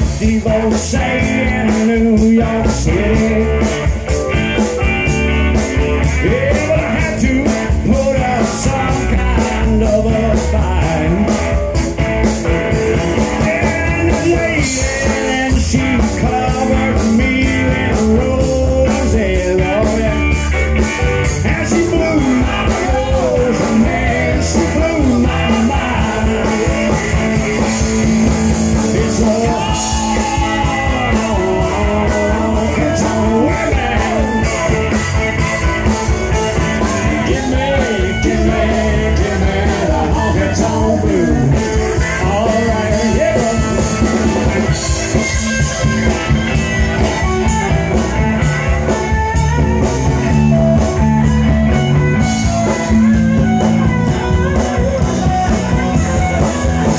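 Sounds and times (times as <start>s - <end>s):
man singing into a microphone: 0.0s - 4.2s, 5.8s - 11.7s, 12.7s - 35.2s, 36.5s - 45.5s
bass guitar: 0.0s - 56.9s
drum kit beat: 0.0s - 56.9s
electric guitar: 0.0s - 56.9s.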